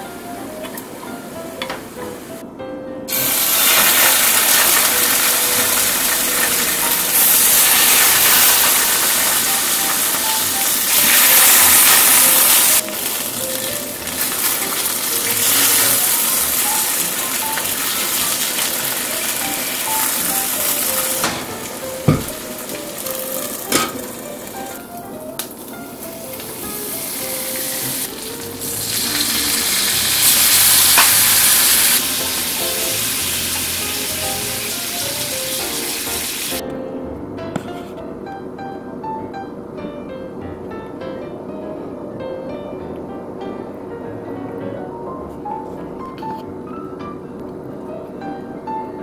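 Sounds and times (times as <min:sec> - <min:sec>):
soft background music: 0:00.0 - 0:49.0
fish sizzling in a pan: 0:03.1 - 0:24.8, 0:25.6 - 0:36.6
lid knocking on pan: 0:21.2 - 0:22.4, 0:23.7 - 0:24.0.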